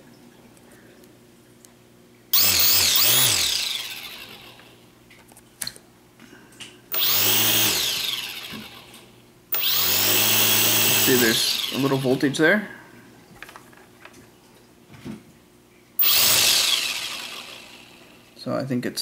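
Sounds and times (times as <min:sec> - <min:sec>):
quadcopter motors whining: 0:02.4 - 0:04.7, 0:06.9 - 0:12.4, 0:16.0 - 0:18.4.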